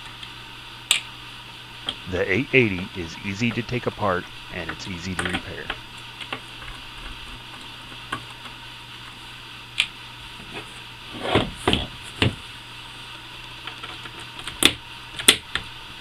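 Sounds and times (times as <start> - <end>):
steady low hum: 0.6 - 7.5.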